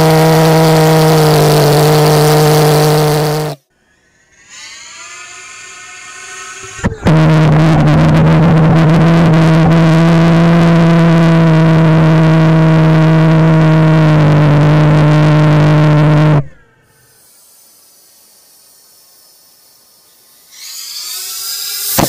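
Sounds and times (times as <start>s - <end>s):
pulsejet engine droning: 6.9s - 22.0s
faint hiss: 16.8s - 22.0s.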